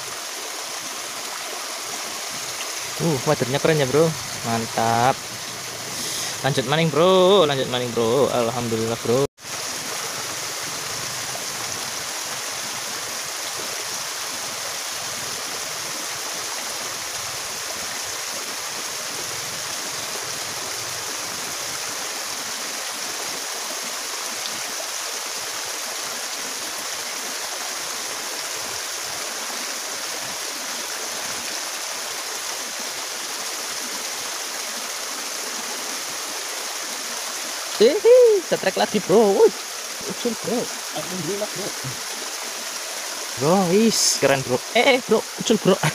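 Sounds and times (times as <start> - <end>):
water rushing in ditch: 0.0 - 45.9
water spilling into pool: 9.4 - 45.9.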